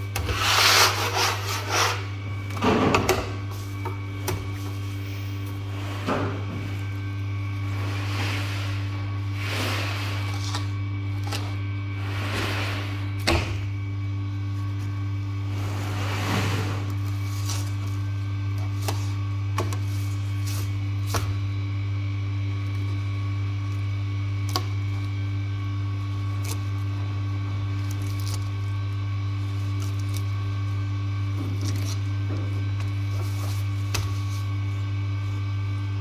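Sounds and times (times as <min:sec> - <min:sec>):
steady low hum: 0:00.0 - 0:36.0
knife scraping swish: 0:00.3 - 0:02.1.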